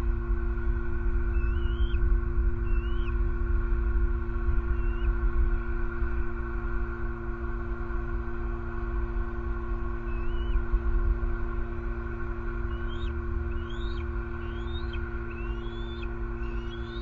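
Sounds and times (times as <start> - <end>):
electrical hum: 0.0 - 17.0
bird chirps: 1.3 - 2.0, 2.7 - 3.1, 4.8 - 5.1, 10.1 - 10.6, 12.7 - 17.0
road traffic rumble: 10.1 - 17.0.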